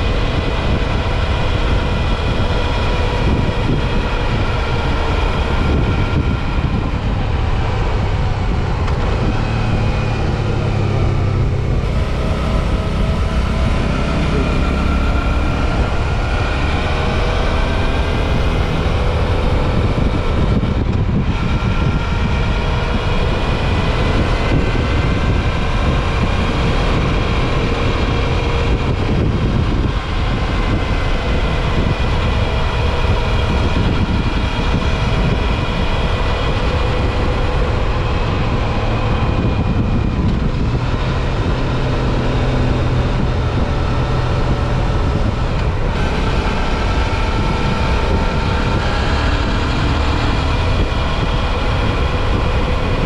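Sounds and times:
motorcycle engine running: 0.0 - 53.0
wind and road noise: 0.0 - 53.0.

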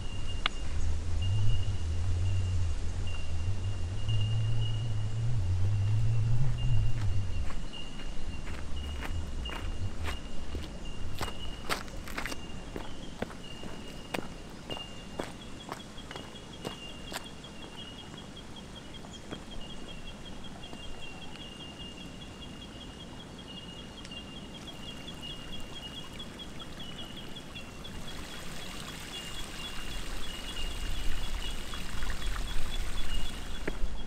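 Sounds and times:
trickling running water: 24.7 - 33.8.

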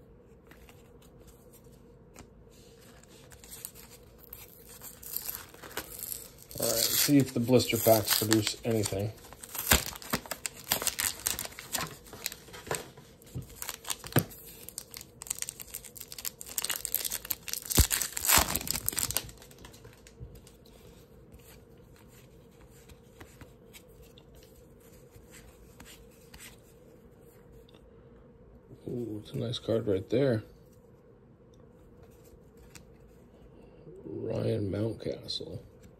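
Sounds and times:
plastic wrapper crinkling and ripping: 3.0 - 20.5
packaging torn open: 3.3 - 12.7, 13.4 - 20.1.

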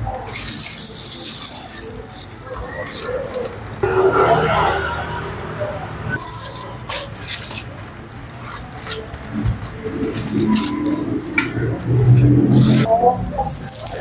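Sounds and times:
foil crinkling and rustling: 0.2 - 3.8, 13.2 - 14.0.

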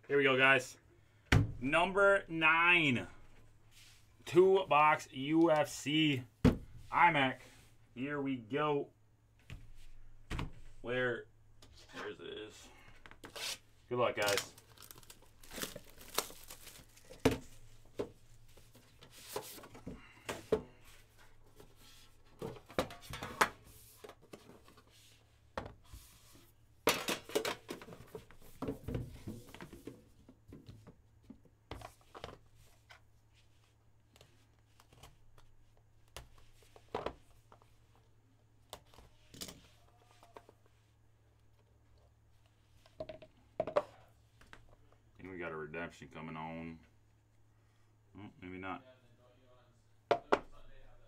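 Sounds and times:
shrink wrap tearing and crinkling: 14.2 - 17.1.

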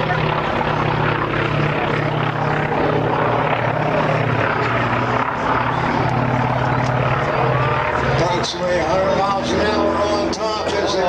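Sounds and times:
propeller aircraft engines droning: 0.0 - 11.0.

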